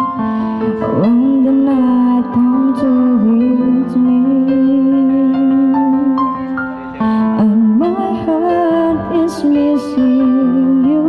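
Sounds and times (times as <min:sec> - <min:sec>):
melody of long held notes: 0:00.0 - 0:11.0.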